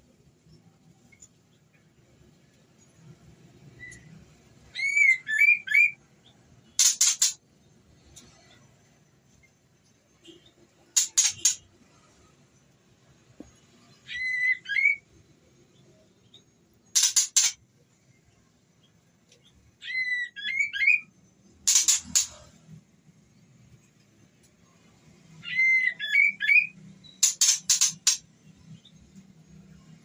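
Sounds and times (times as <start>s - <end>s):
bird harsh rattling notes: 16.9s - 17.6s, 21.6s - 22.4s, 27.2s - 28.2s.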